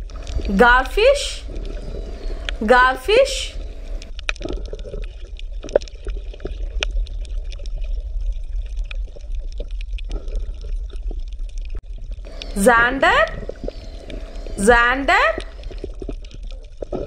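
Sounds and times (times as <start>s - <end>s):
small pops and drips: 0.0s - 0.5s, 3.6s - 12.6s, 13.2s - 14.6s, 15.3s - 17.0s
steady low hum: 0.0s - 4.1s, 12.3s - 15.9s
water bubbling and trickling: 0.0s - 17.0s.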